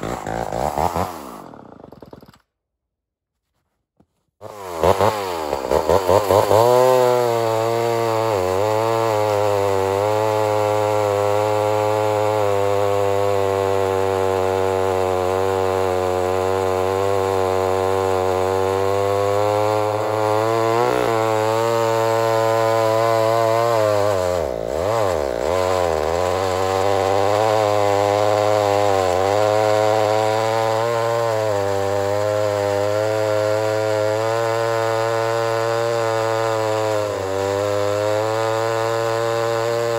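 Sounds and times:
chainsaw cutting log: 0.0s - 2.7s, 4.1s - 39.9s.

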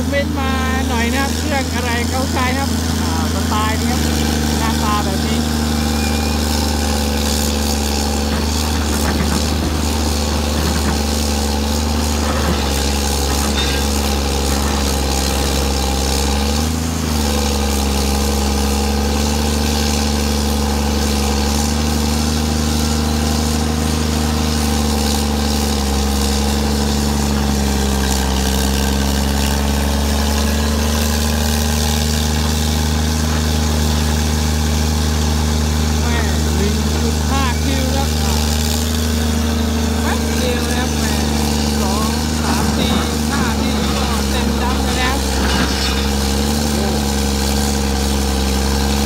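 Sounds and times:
excavator diesel engine running: 0.0s - 49.0s.

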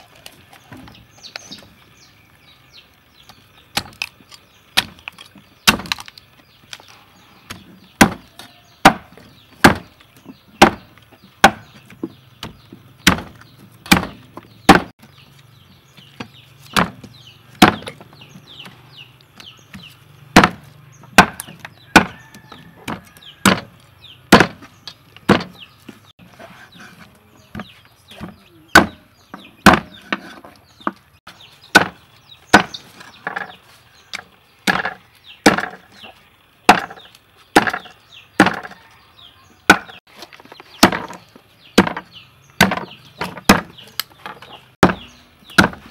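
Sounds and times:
cleaver chopping on wooden block: 7.5s - 9.9s, 10.6s - 10.8s, 11.4s - 11.8s, 12.4s - 14.9s, 16.7s - 18.0s, 20.4s - 24.7s, 25.3s - 25.6s, 28.2s - 29.0s, 29.6s - 30.2s, 31.7s - 33.5s, 34.7s - 35.8s, 36.7s - 38.8s, 39.7s - 40.0s, 40.8s - 41.2s, 41.8s - 43.8s, 44.8s - 45.9s.

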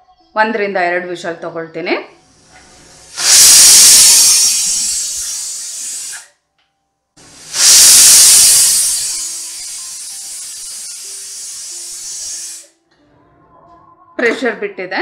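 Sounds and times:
pressure cooker whistle hissing: 2.4s - 6.3s, 7.3s - 12.8s.

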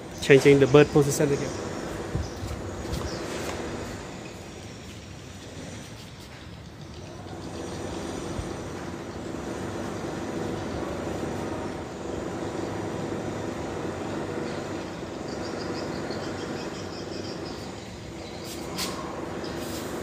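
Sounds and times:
low mechanical rumble: 6.9s - 20.0s.

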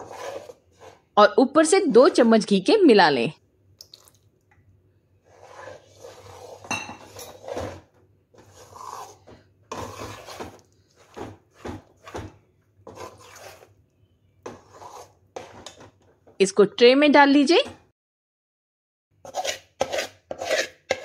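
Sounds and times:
metal spatula scraping a pan: 0.0s - 1.1s, 5.2s - 13.8s, 14.4s - 16.0s, 19.2s - 21.0s.

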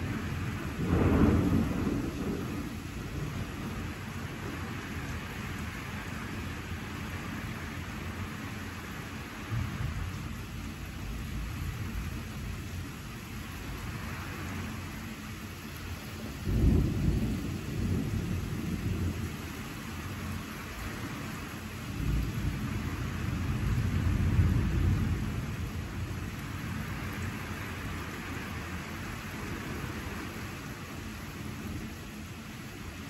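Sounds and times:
rolling thunder: 0.0s - 6.8s, 16.4s - 19.6s, 21.9s - 30.5s
steady rain hissing: 0.0s - 33.0s.

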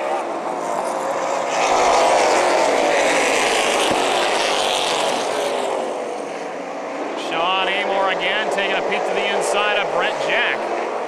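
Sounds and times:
race car engines passing by: 0.0s - 11.0s.

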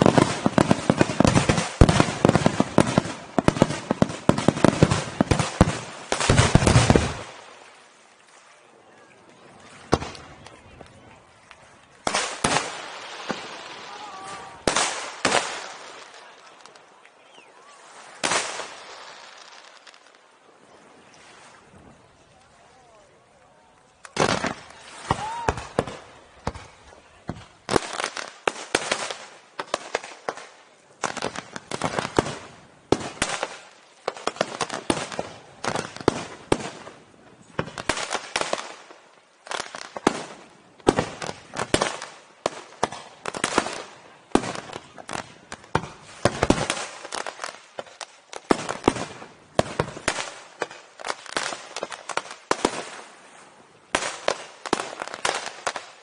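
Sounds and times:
fireworks bangs: 0.0s - 7.6s, 9.9s - 10.4s, 12.0s - 16.9s, 18.2s - 20.2s, 24.1s - 53.2s.

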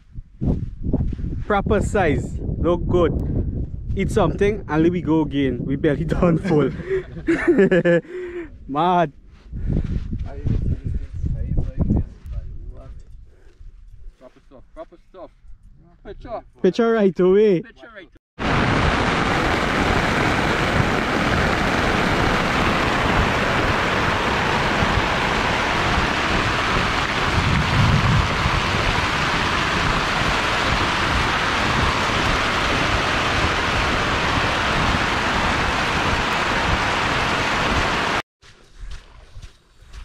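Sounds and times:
heavy rain on a tent: 18.4s - 38.2s
low rumble: 18.4s - 38.2s.

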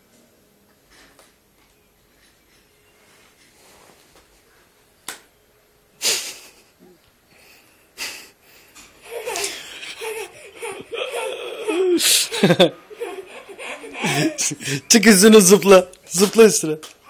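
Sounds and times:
toddler laughing: 9.0s - 14.8s.

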